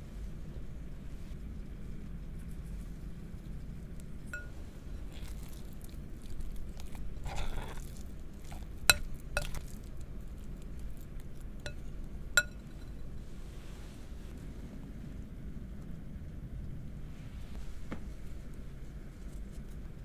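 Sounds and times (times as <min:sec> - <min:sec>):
spoon stirring thick mash: 0:03.9 - 0:13.1
spoon clinking on glass: 0:04.3 - 0:04.5, 0:12.4 - 0:12.9
spoon scraping: 0:04.3 - 0:13.0.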